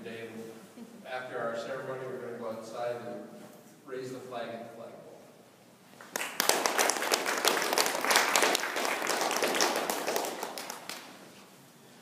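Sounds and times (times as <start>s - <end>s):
audience applauding: 6.0s - 11.2s.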